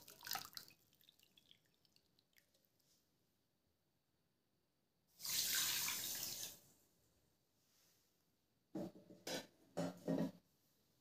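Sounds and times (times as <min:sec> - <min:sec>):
water pouring and splashing: 0:00.0 - 0:02.9, 0:05.2 - 0:06.6.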